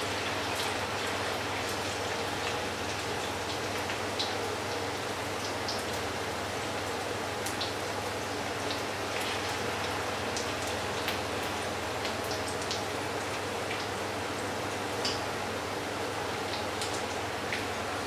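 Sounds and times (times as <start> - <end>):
fritters sizzling in hot oil: 0.0 - 14.2.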